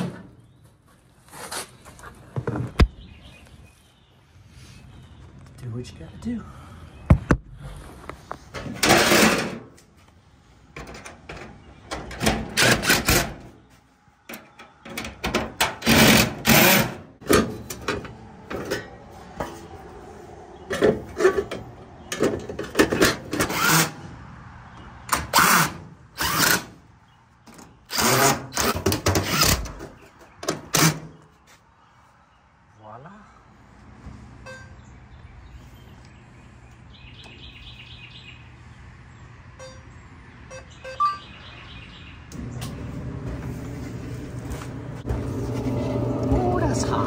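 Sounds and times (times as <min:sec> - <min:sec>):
cordless drill driving screws: 0:27.9 - 0:29.7.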